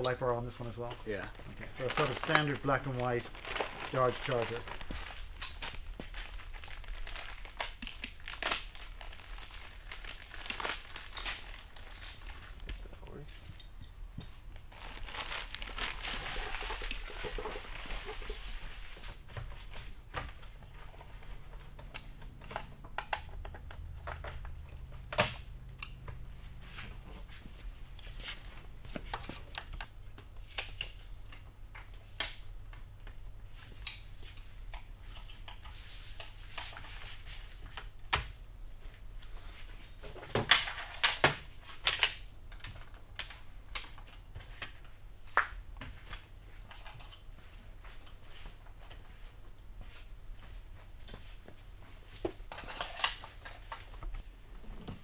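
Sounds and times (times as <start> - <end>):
plastic packaging rustling: 0.8 - 13.2, 14.5 - 19.3.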